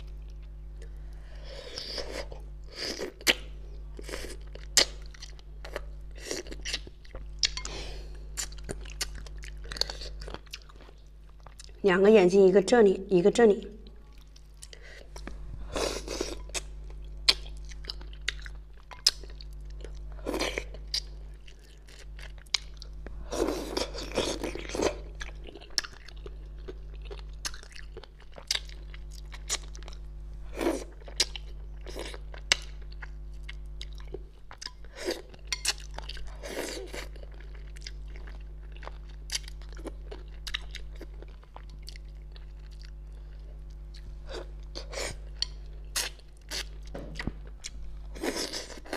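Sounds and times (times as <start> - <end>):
low electrical hum: 0.0 - 48.9
chewing and mouth sounds: 16.0 - 30.0.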